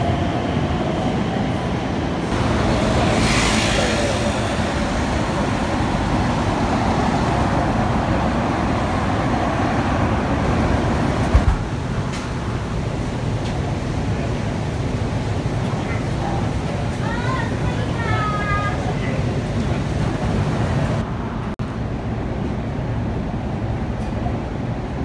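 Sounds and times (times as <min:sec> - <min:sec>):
cars passing: 0:02.3 - 0:11.6.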